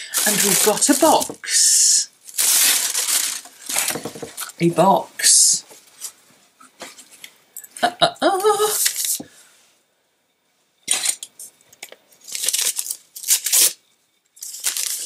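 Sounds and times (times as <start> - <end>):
wrapping paper rustling and tearing: 0.0 - 4.5, 8.7 - 9.2, 12.2 - 13.8, 14.4 - 15.0
person humming: 7.8 - 8.8.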